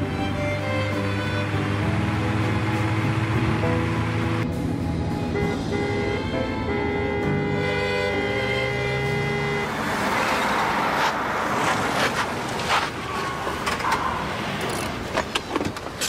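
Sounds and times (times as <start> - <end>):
background music: 0.0 - 10.6.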